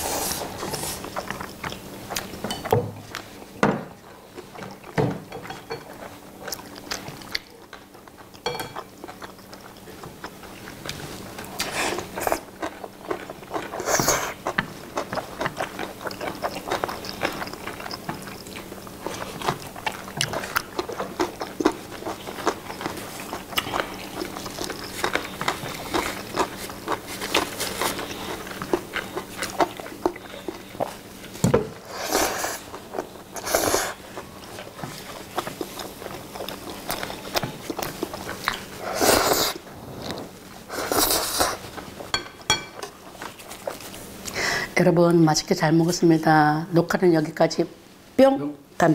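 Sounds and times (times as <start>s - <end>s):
chewing: 0.1s - 3.6s, 4.3s - 44.4s.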